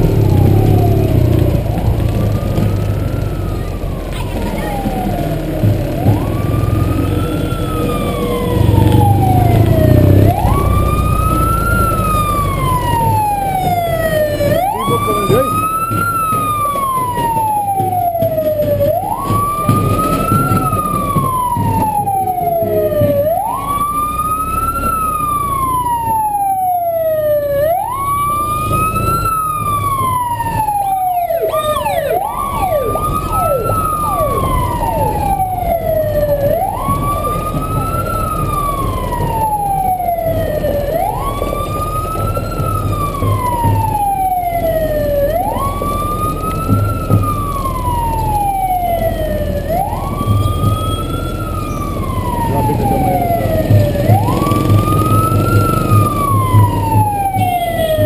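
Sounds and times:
electronic siren wailing: 0.0 - 58.0
vehicle rumble: 0.0 - 58.0
quick falling siren tones: 6.0 - 18.2, 18.9 - 41.7.

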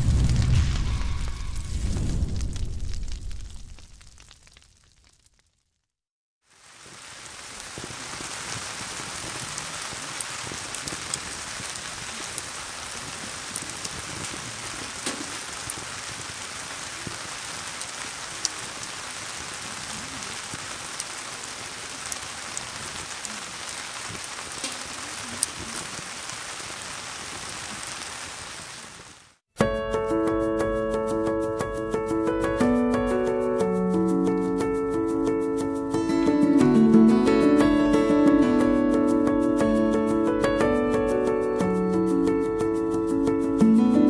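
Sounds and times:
campfire crackling: 0.0 - 29.4.

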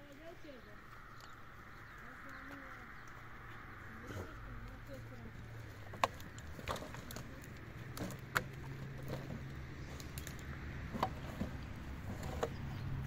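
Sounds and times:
wooden poles knocking: 10.2 - 12.7.

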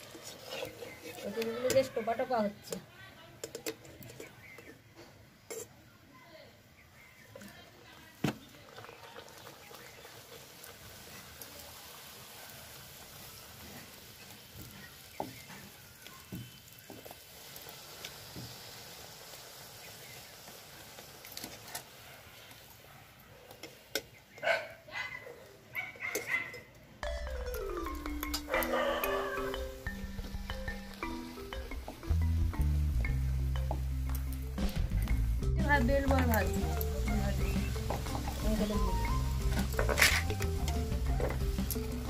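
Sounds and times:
hot oil sizzling: 0.0 - 5.7, 8.1 - 22.9, 27.0 - 42.0
music: 27.0 - 42.0.

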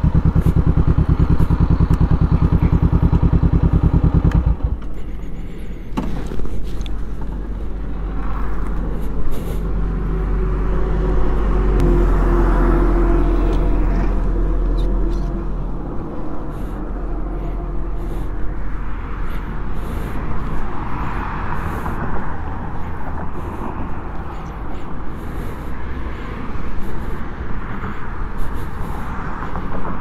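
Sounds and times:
motorcycle engine idling: 0.0 - 20.8.

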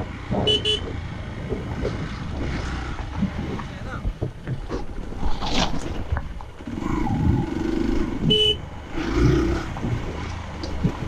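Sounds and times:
short horn beep: 0.5 - 0.9, 8.3 - 8.6.

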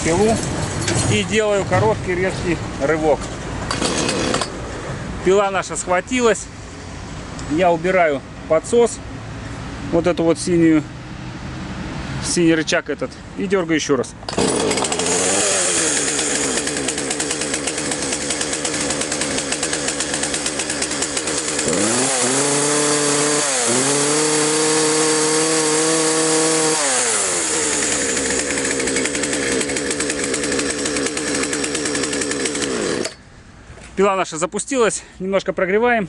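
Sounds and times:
chainsaw engine idling and revving: 3.6 - 4.7, 13.8 - 33.3.

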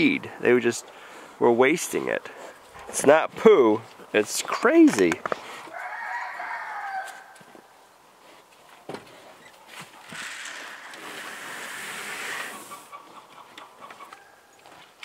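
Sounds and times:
dry feed pouring: 10.2 - 12.7.

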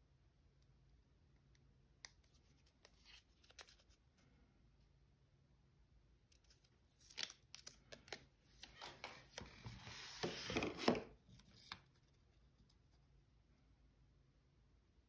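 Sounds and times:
paper pages rustling: 2.3 - 4.0, 6.4 - 12.1.

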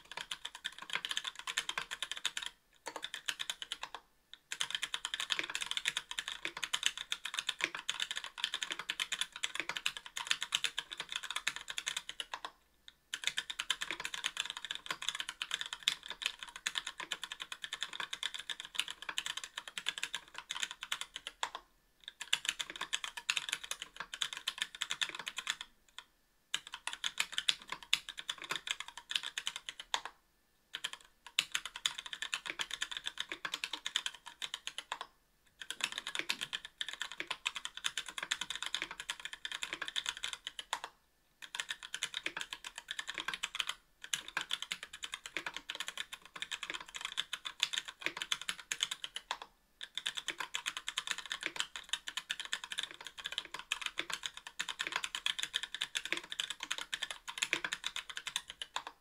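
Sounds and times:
fast keyboard typing: 0.0 - 59.0.

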